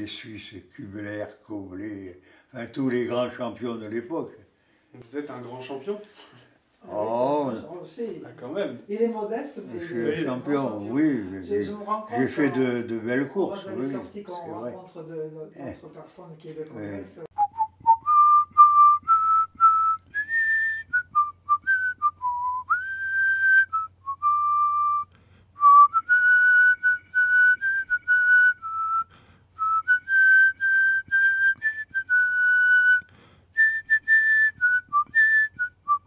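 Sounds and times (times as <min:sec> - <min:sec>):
person whistling a tune: 0:17.4 - 0:36.0.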